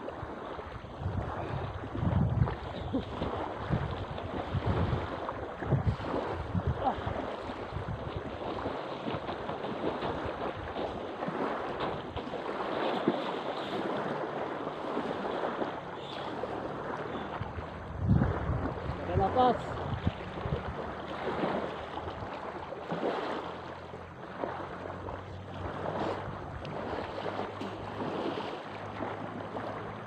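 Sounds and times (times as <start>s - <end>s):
wind buffeting microphone: 0.0s - 23.7s
waves lapping on pebbles: 0.0s - 30.0s.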